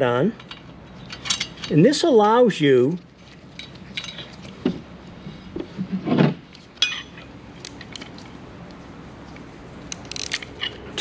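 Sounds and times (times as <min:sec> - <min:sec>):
light metal clicks and clinks: 0:03.5 - 0:04.6, 0:06.8 - 0:08.3.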